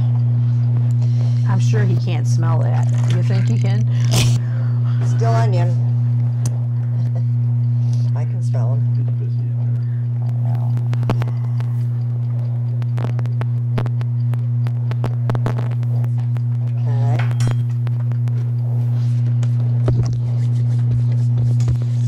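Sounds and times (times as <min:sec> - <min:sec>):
loud low hum: 0:00.0 - 0:22.0.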